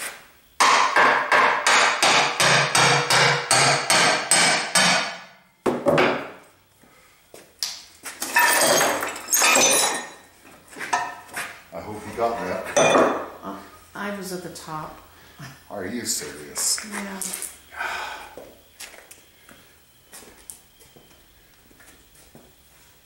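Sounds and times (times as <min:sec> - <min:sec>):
hammer striking metal: 0:00.6 - 0:05.4
metal clattering and clinking: 0:08.3 - 0:10.2.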